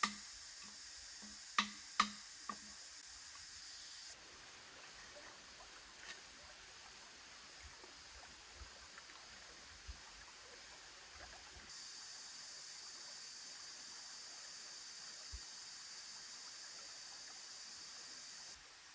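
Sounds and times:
bamboo knocking and clicking: 0:00.0 - 0:02.8
stream running over rocks: 0:00.0 - 0:18.9.

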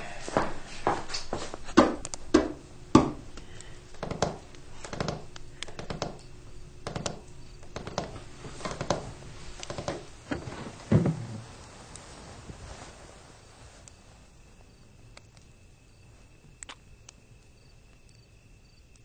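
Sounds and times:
footsteps walking: 0:00.2 - 0:03.3, 0:08.1 - 0:13.2
faint irregular clicks and ticks: 0:03.3 - 0:10.1, 0:16.6 - 0:18.2.

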